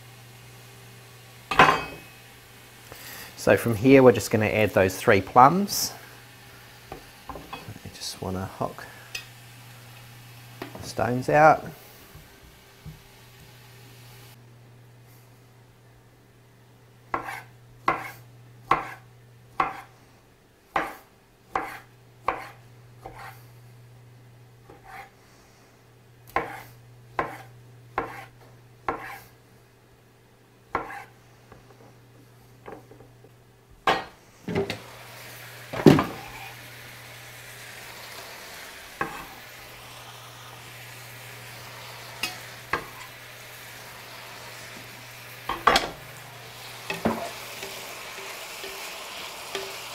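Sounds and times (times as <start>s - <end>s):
food sizzling in a pan: 0.0s - 14.4s, 17.1s - 19.9s, 33.9s - 49.9s
knife chopping on wooden board: 17.1s - 19.0s, 19.6s - 19.9s, 20.7s - 23.3s, 26.3s - 26.6s, 27.2s - 29.2s, 30.7s - 31.1s.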